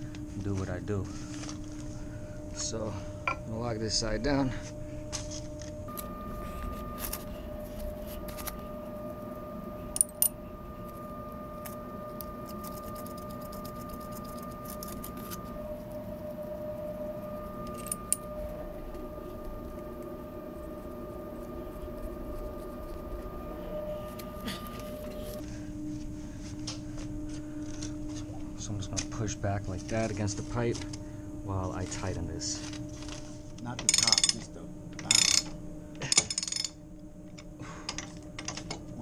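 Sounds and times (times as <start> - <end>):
steady equipment hum: 0.0 - 39.0.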